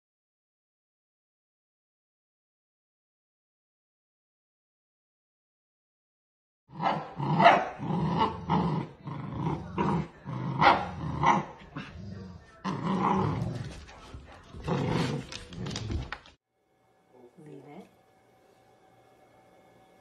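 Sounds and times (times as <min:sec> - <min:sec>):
dogs growling: 0:06.7 - 0:16.3
dogs barking: 0:06.8 - 0:08.5, 0:10.5 - 0:11.9.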